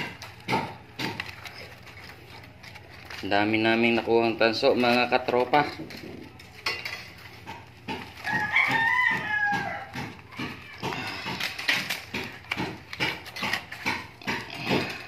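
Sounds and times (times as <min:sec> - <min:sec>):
wire rustling and clicking: 0:00.0 - 0:15.0
animal call: 0:08.2 - 0:12.2.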